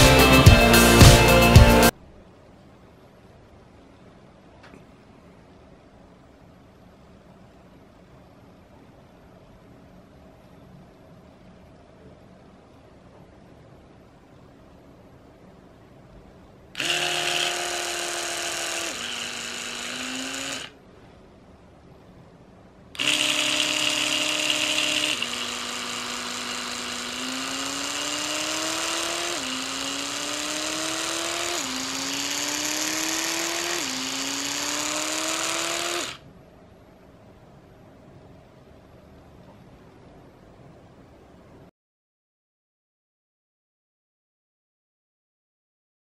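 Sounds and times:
electric toothbrush buzzing: 16.8 - 20.8, 23.0 - 36.2.

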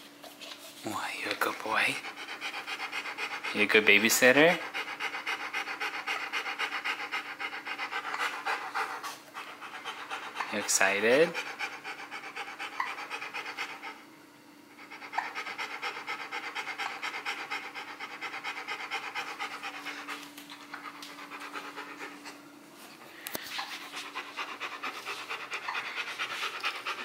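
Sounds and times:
dog panting: 0.2 - 14.1, 14.7 - 27.0.

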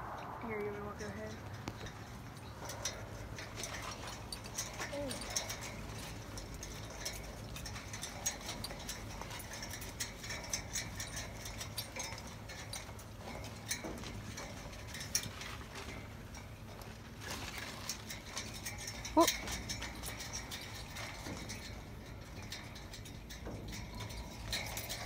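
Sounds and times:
low steady rumble: 0.0 - 25.0
dog claws on metal grating: 1.3 - 25.0.

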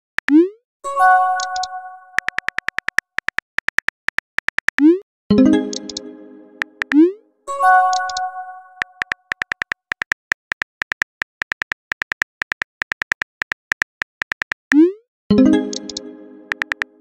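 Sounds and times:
message chime: 0.9 - 2.3, 5.3 - 9.0
phone keyboard clicks: 1.4 - 4.9, 7.9 - 14.7, 15.7 - 16.9.

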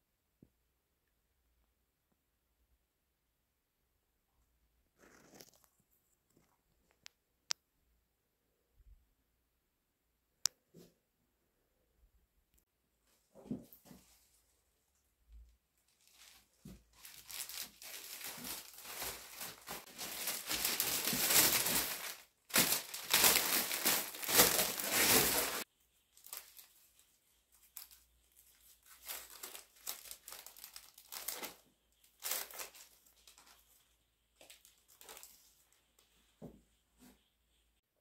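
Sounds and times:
soft paper rustles: 5.0 - 7.0, 13.1 - 37.8
cellophane wrapping crinkling: 15.8 - 36.1.

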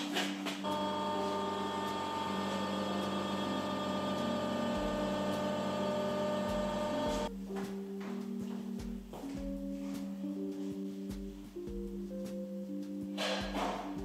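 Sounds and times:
press motor and pump hum: 0.7 - 7.3.

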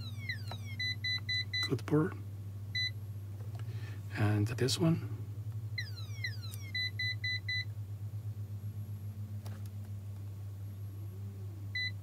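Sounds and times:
falling electronic tones: 0.0 - 1.4, 5.8 - 7.6
short beeps: 0.0 - 1.8, 5.8 - 7.6
steady low hum: 0.0 - 12.0.

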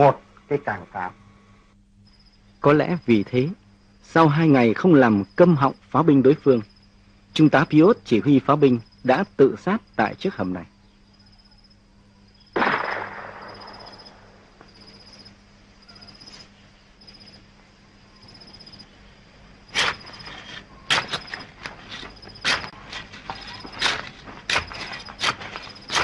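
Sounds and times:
crickets chirping: 0.0 - 26.0
sharp blast: 12.6 - 14.5
gunshots cracking: 12.6 - 14.6.

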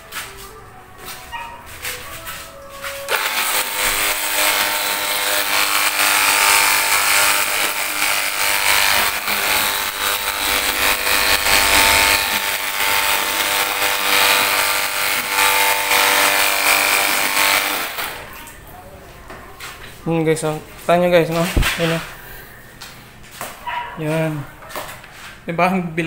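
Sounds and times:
pump motor whining: 3.1 - 18.4.

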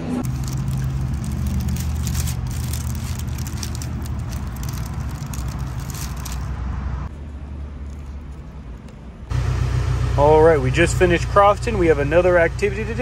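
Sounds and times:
low mechanical hum: 0.0 - 13.0
paper wrapper crackling: 0.2 - 6.6.

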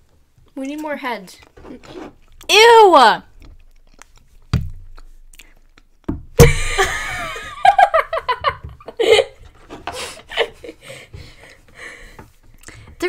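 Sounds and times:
girls laughing: 6.4 - 11.1.

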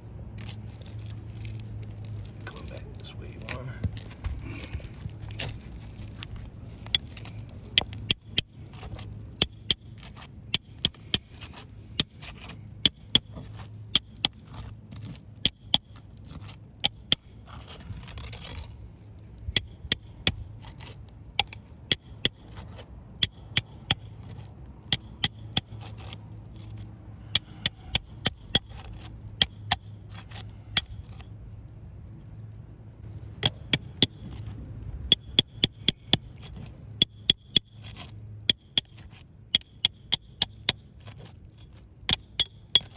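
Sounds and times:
scraping rasp: 6.8 - 18.8, 19.6 - 31.4, 33.4 - 42.9
hammer tapping metal bar: 33.4 - 34.3.

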